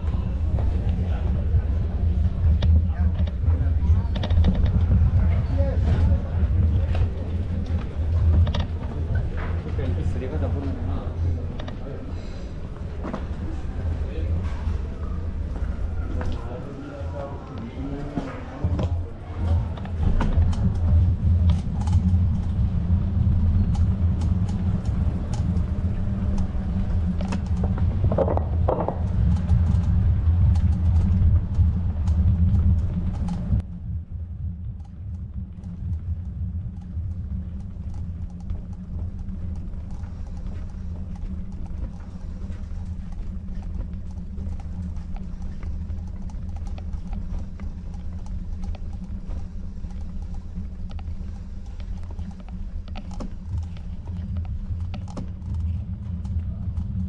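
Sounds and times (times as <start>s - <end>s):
wind rumble on microphone: 0.0s - 11.9s, 18.2s - 57.0s
bicycle tyre noise: 0.0s - 57.0s
small ticks and clicks: 5.9s - 11.9s, 18.8s - 33.8s, 34.6s - 57.0s.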